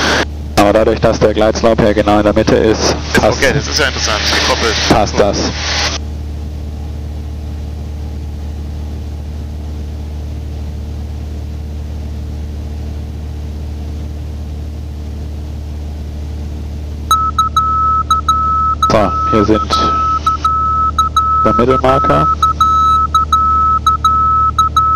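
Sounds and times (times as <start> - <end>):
propeller plane engine drone: 0.0 - 24.9
high beeping tone: 17.1 - 24.9.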